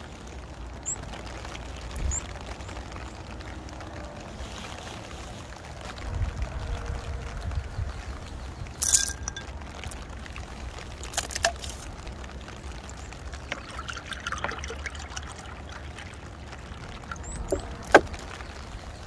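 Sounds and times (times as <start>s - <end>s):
rain falling steadily: 0.0s - 19.0s
water drips: 8.3s - 19.0s
plastic bottle and cup clicks: 11.0s - 11.8s, 17.1s - 18.1s.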